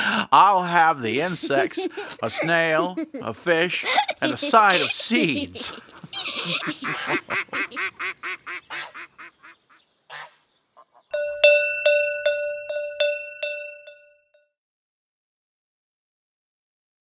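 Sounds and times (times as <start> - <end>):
duck quacking rapidly: 5.8 - 11.1
cowbell ringing: 11.1 - 14.3.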